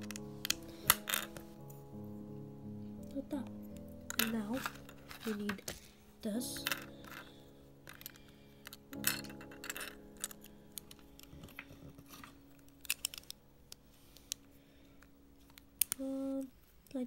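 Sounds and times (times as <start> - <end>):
plastic bricks clicking: 7.9 - 13.4.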